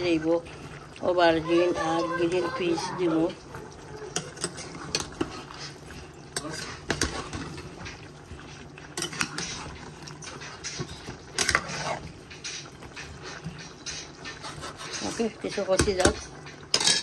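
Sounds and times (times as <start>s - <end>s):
metal spoon scraping a pot: 4.0s - 17.0s.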